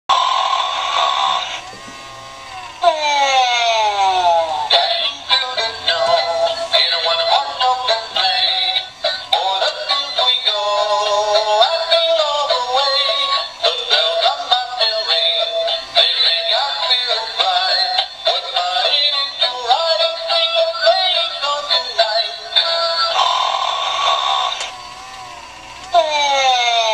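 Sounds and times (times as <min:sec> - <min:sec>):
toy singing in tinny electronic voice: 0:02.8 - 0:24.6, 0:25.9 - 0:26.9.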